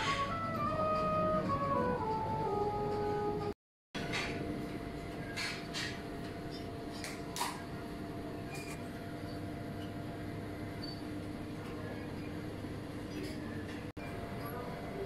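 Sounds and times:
flute tune: 0.0 - 3.6
indoor background hum: 0.0 - 15.0.

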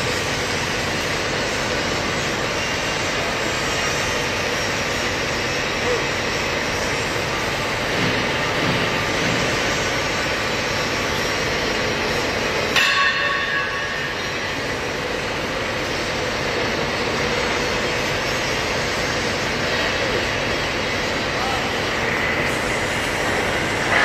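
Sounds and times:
steady machinery noise: 0.0 - 24.0
sharp metallic clang: 12.7 - 14.3.

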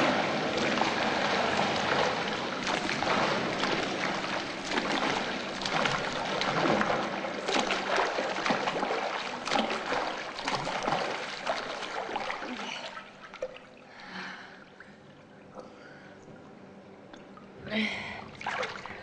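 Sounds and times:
swimmer splashing in water: 0.0 - 12.7.

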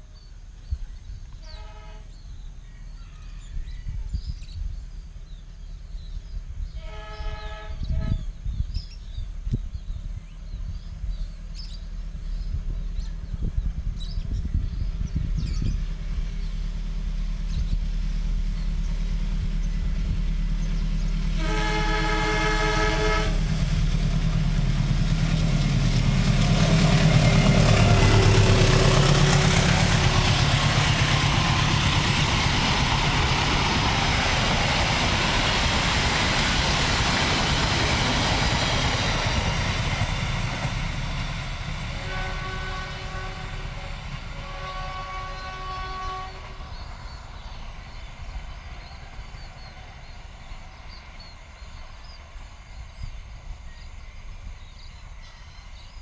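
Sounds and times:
train chord horn: 1.4 - 2.2, 6.8 - 8.3, 21.4 - 23.7, 41.8 - 46.8
train wheels on rails: 8.9 - 56.0
locomotive engine rumbling: 9.3 - 56.0.

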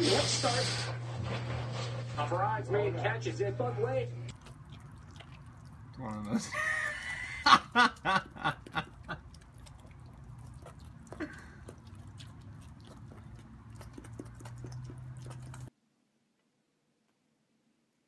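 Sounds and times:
goat chewing wetly: 4.3 - 15.7.

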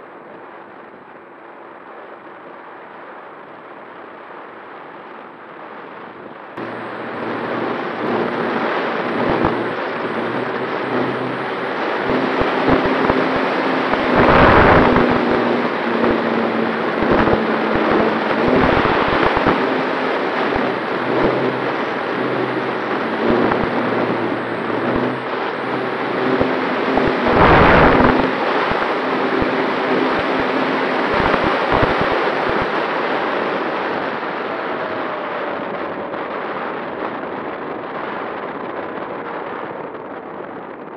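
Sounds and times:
wind rushing over camera: 0.0 - 40.9
electric motor and propeller hum: 6.6 - 37.6.

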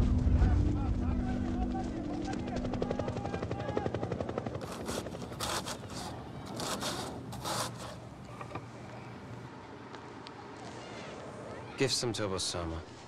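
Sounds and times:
rapid pulsing: 2.5 - 8.2
knife slicing cabbage on board: 4.6 - 8.0.

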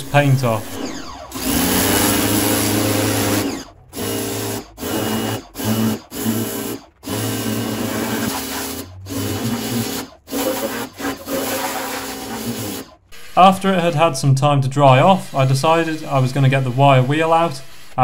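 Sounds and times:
pressure washer motor hum: 0.0 - 18.0
water jet hissing on a wheel: 5.4 - 13.6, 14.9 - 18.0.

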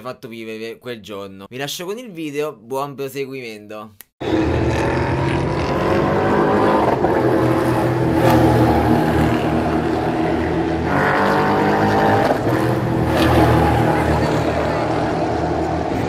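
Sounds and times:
engine accelerating: 4.2 - 16.0
racing car engines droning: 4.2 - 16.0.

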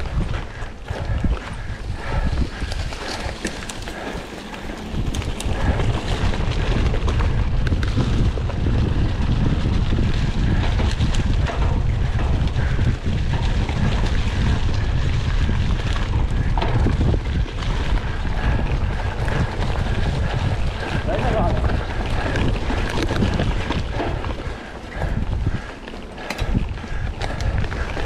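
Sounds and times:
wind buffeting microphone: 0.0 - 28.0
knocks and rattles: 4.7 - 25.6.

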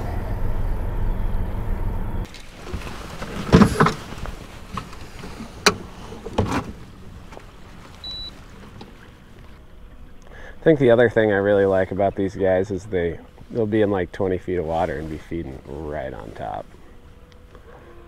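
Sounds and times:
boat motor humming: 0.0 - 18.0
knocks and bumps: 2.6 - 7.4.

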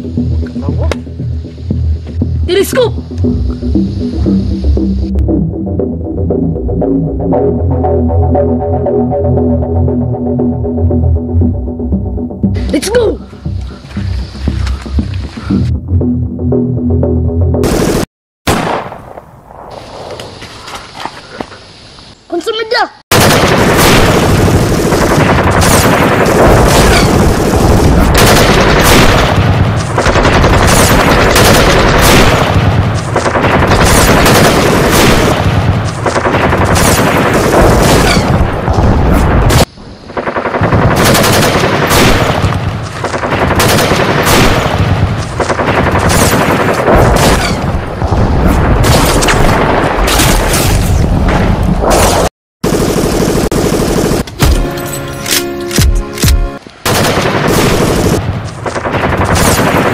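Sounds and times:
machine-gun fire and gunshots: 23.1 - 50.7, 51.9 - 54.8, 55.8 - 59.9.

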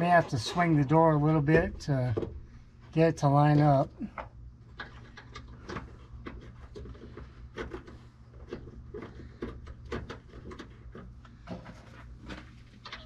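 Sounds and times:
low hum: 0.0 - 9.0.

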